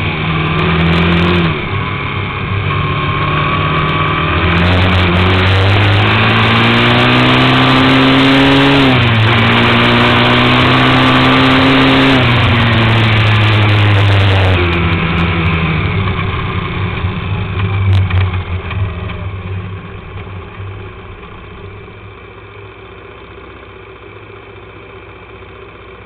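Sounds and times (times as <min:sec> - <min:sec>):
quad bike engine slowing and idling: 0:00.0 - 0:26.0.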